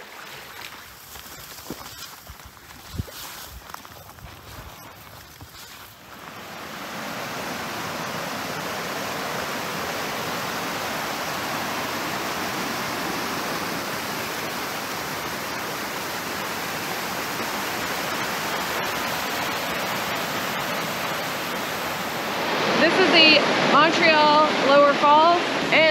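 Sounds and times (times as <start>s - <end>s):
white water rushing over rock: 6.0s - 25.9s.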